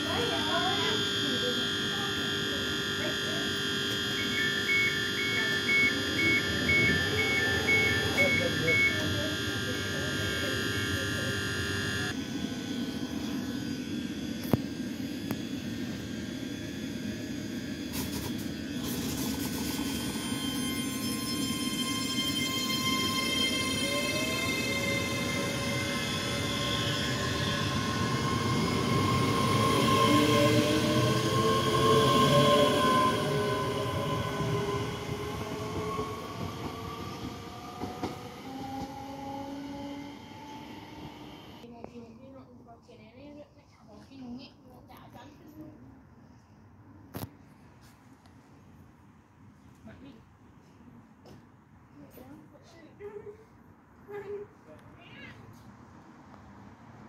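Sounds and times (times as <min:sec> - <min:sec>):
passenger train rumble and whine: 0:03.3 - 0:41.7.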